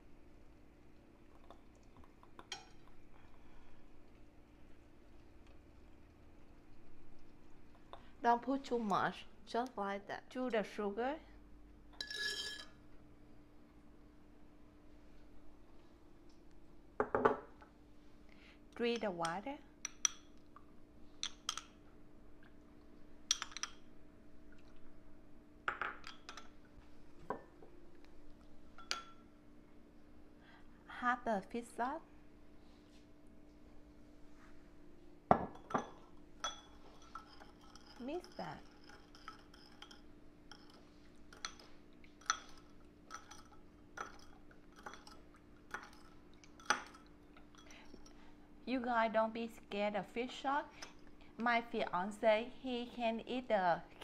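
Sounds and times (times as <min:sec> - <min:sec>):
faint steady hum: 0:00.0 - 0:54.0
spoon clinking on dishes: 0:12.0 - 0:12.8, 0:28.8 - 0:29.3, 0:35.3 - 0:48.2.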